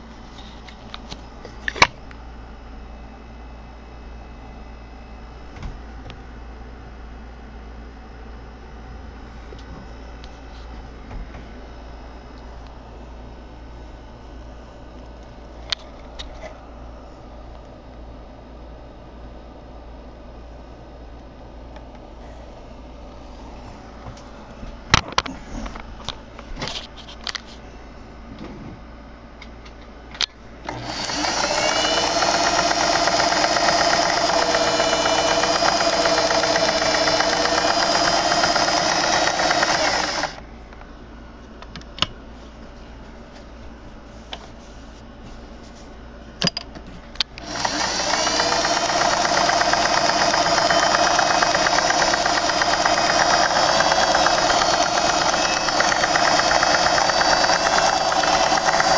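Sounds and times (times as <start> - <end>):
sewing machine stitching: 30.7 - 40.4, 47.4 - 58.9.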